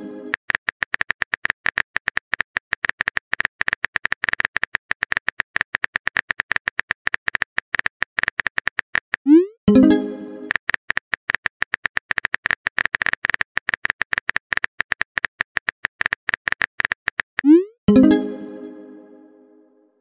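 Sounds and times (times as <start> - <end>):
phone keyboard clicks: 0.4 - 9.3.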